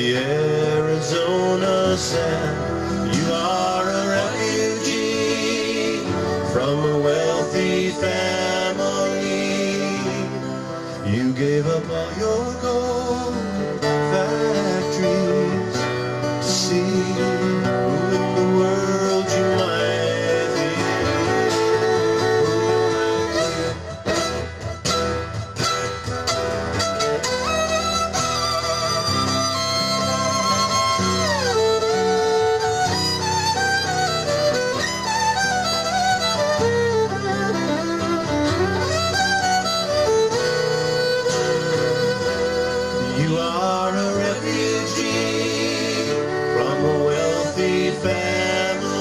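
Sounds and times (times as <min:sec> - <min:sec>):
fiddle: 0:00.0 - 0:49.0
steel guitar melody: 0:00.0 - 0:49.0
strummed acoustic guitar: 0:00.0 - 0:49.0.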